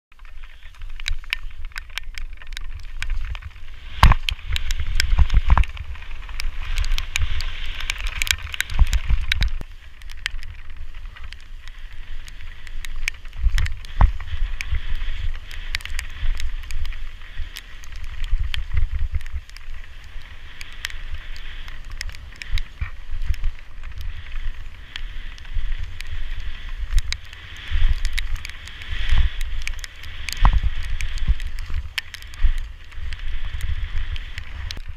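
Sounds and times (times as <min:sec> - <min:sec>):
bike knocking and rattling: 0:00.1 - 0:34.9
tyres hissing on loose dirt: 0:00.2 - 0:34.9
wind buffeting microphone: 0:00.2 - 0:34.9.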